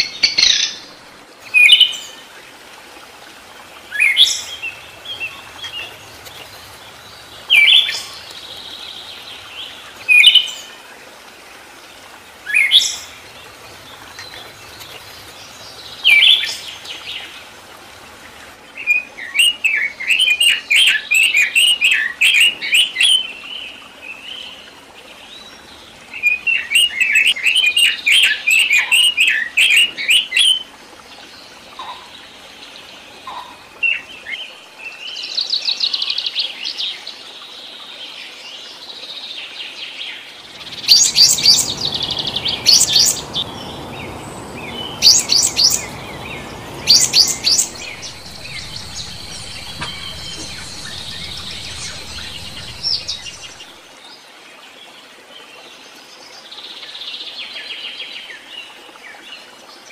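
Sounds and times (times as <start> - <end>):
songbirds singing: 40.1 - 53.7
steady rushing background: 40.5 - 53.7.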